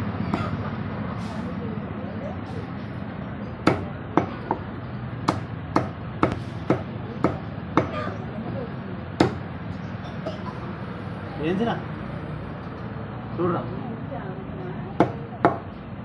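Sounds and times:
cleaver chopping on wooden block: 3.6s - 4.6s, 5.2s - 8.0s, 9.2s - 9.4s, 15.0s - 15.7s.

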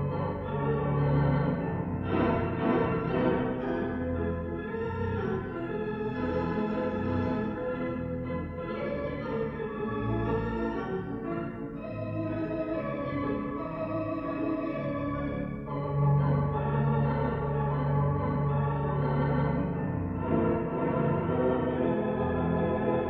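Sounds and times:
pipe organ playing chords: 0.0s - 23.0s.

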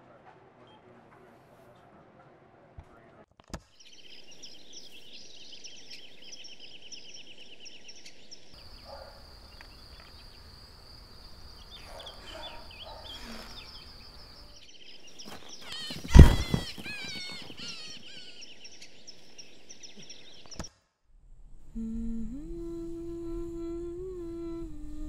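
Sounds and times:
bird calls: 3.8s - 20.7s
insects chirping: 4.0s - 20.7s, 21.3s - 25.0s
soft hiss: 21.3s - 25.0s.

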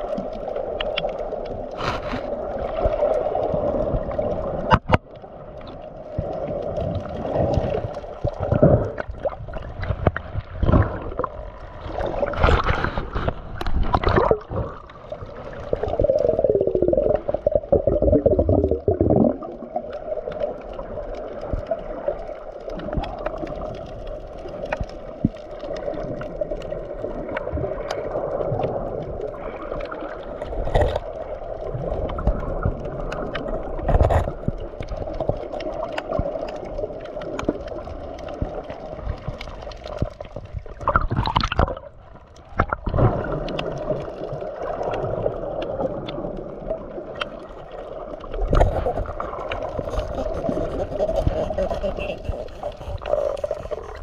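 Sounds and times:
rush of water: 0.0s - 54.0s
seawater gurgling and sloshing: 0.0s - 54.0s.

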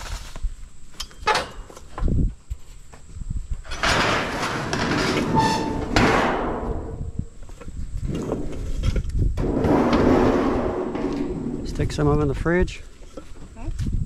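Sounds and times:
sheet metal scraping and clanking: 3.7s - 7.2s, 8.1s - 12.3s.

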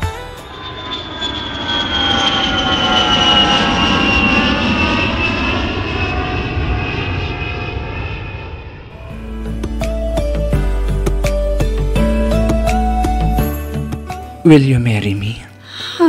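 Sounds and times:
airplane engine with high whine: 0.0s - 11.0s.

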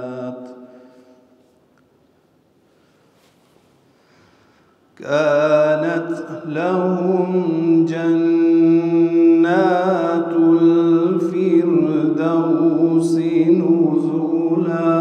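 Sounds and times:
man chanting melodically: 0.0s - 0.7s, 5.0s - 15.0s.

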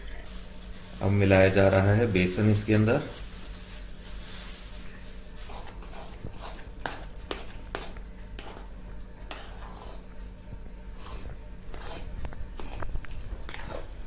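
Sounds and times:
metal spoon scraping a pan: 13.5s - 14.0s.

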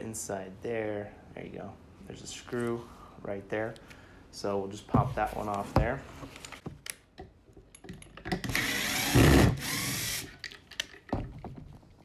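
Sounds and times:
cordless drill running: 8.5s - 10.4s.

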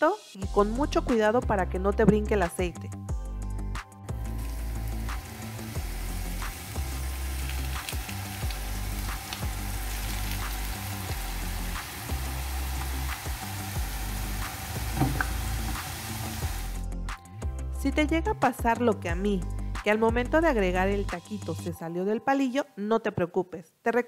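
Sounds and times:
background music with bass: 0.4s - 21.8s
hot oil sizzling: 4.1s - 16.8s
oil pops and crackles: 7.4s - 11.9s, 14.4s - 16.0s.

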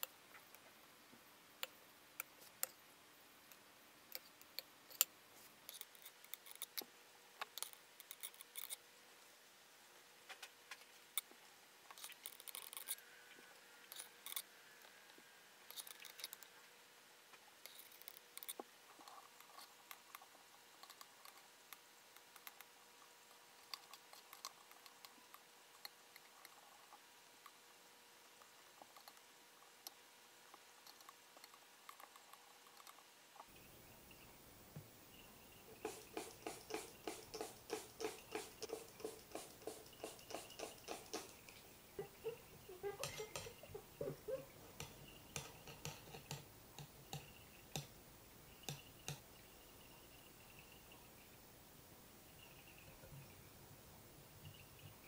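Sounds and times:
metal tweezers clicking and tapping: 43.0s - 43.6s, 44.8s - 48.0s, 48.6s - 49.2s.

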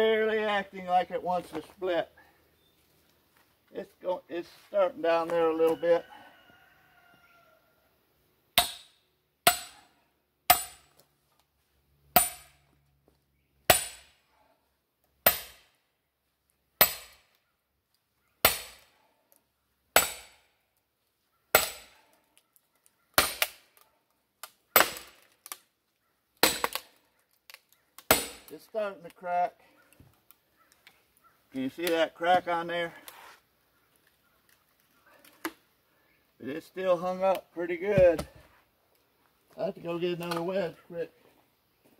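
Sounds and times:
sledgehammer striking steel wedge: 8.6s - 9.8s, 10.5s - 10.9s, 12.2s - 12.6s, 13.7s - 14.2s, 15.2s - 15.7s, 16.8s - 17.2s, 18.4s - 18.9s, 20.0s - 20.4s, 21.5s - 22.0s, 23.2s - 23.6s, 24.8s - 25.2s, 26.4s - 26.8s, 28.1s - 28.5s.

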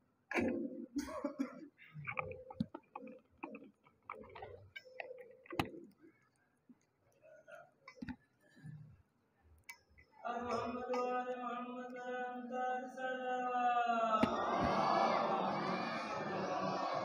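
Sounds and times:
group chanting in response: 14.0s - 17.0s.

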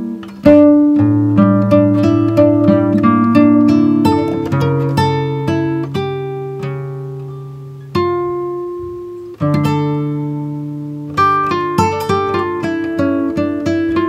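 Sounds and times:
plucked string music: 0.0s - 14.0s.

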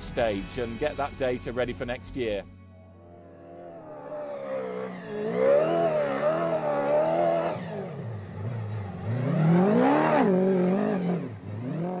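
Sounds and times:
rally car engine revving: 3.0s - 12.0s.

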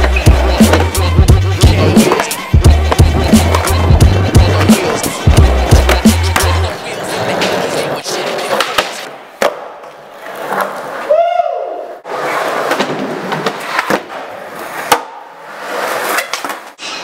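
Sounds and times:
skateboard wheels rolling on concrete: 0.0s - 17.0s
skateboard pops and landing clacks: 8.5s - 9.8s.

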